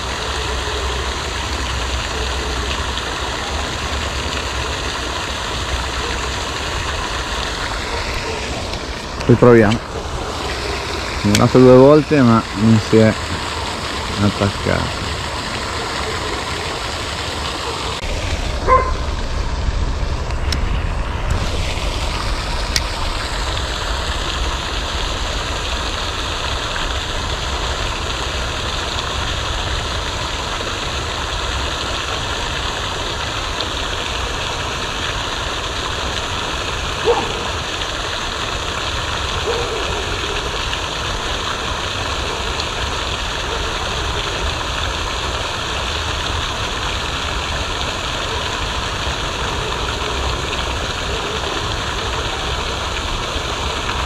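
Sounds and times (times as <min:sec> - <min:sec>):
fountain water rushing: 0:00.0 - 0:54.0
low rumble: 0:18.0 - 0:24.3.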